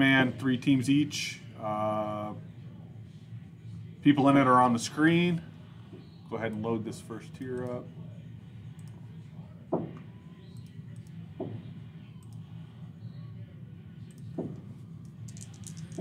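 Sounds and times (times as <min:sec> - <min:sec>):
low steady hum: 0:00.0 - 0:16.0
computer mouse clicks: 0:14.1 - 0:14.3.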